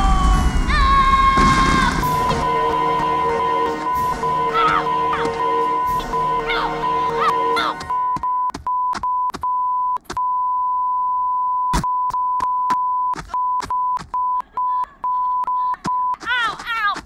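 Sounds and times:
censor bleep tone: 7.9s - 14.4s.

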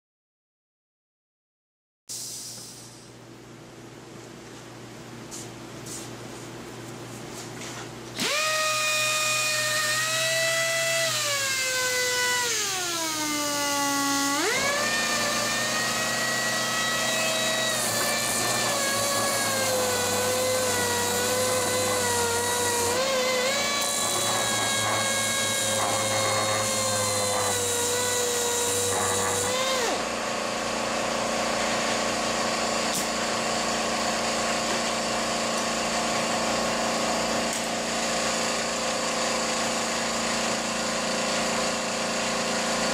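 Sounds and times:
mechanical hum with hiss: 2.1s - 8.2s
orbital sander whining: 8.2s - 30.3s.

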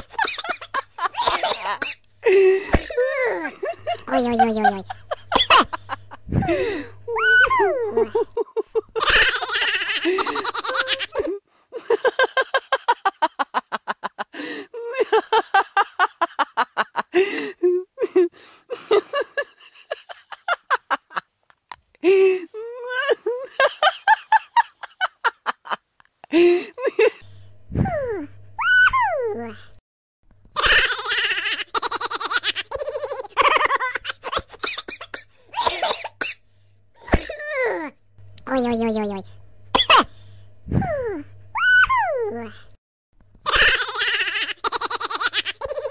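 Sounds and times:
people giggling and chuckling: 0.0s - 21.3s
person laughing heartily: 0.0s - 29.6s, 30.6s - 36.2s, 43.4s - 45.9s
faint steady hum: 0.0s - 45.9s.

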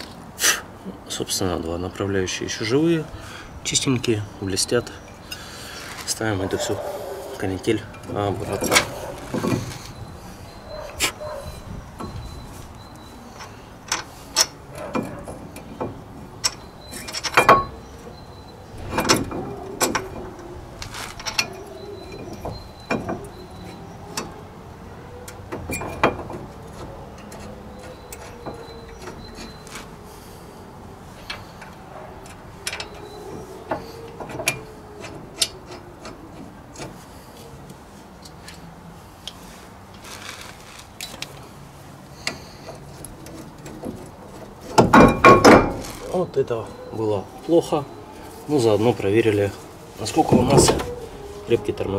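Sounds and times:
metal parts clinking and knocking: 7.8s - 24.4s, 25.3s - 30.0s, 31.1s - 37.0s, 42.2s - 46.2s.

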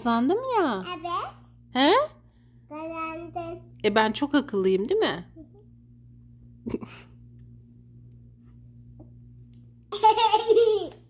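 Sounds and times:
steady low hum: 0.0s - 11.0s
girl laughing loudly: 9.9s - 11.0s.

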